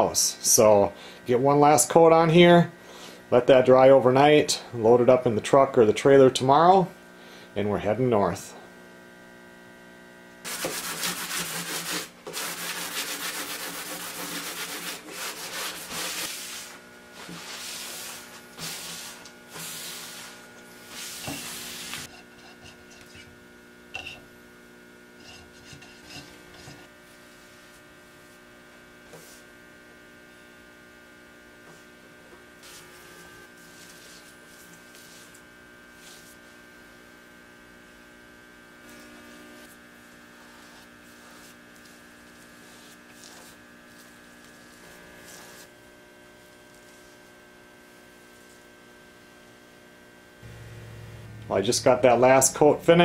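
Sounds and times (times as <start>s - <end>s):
electrical hum: 0.0s - 53.0s
hand sanding wood: 10.5s - 22.1s, 32.6s - 36.6s, 40.1s - 45.8s.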